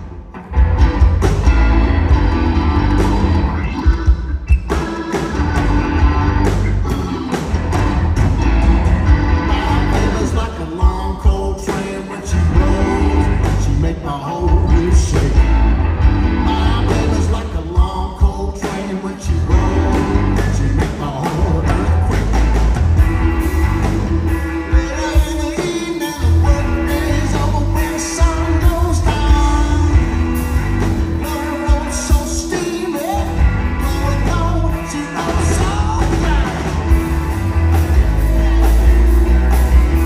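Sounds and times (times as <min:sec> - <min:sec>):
drums: 0:00.0 - 0:40.0
electric guitars: 0:00.0 - 0:40.0
keyboard: 0:00.0 - 0:40.0
male lead vocal: 0:06.6 - 0:07.6, 0:09.3 - 0:22.6, 0:24.6 - 0:37.0.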